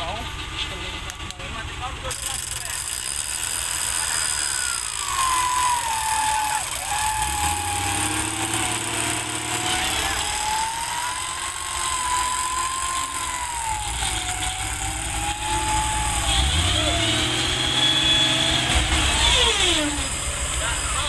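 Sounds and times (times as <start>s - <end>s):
low engine rumble: 0.0s - 2.1s, 4.0s - 21.0s
whining tone: 3.0s - 21.0s.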